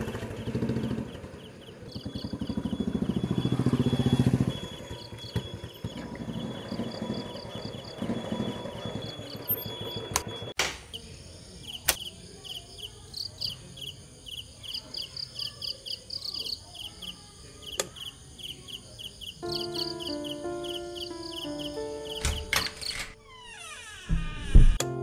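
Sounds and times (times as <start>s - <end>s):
low engine rumble: 0.0s - 10.2s
crickets chirping: 0.1s - 24.0s
sharp clicks: 11.8s - 12.1s.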